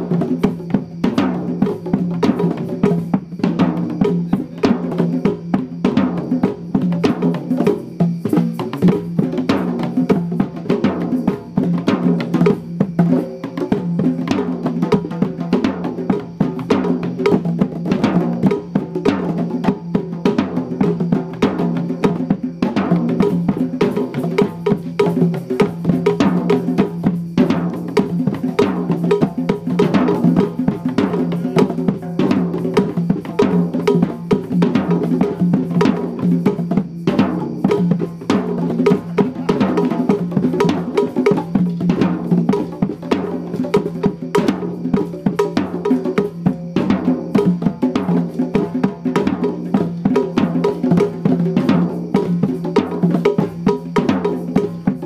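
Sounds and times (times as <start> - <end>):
hand drums playing: 0.0 - 55.0.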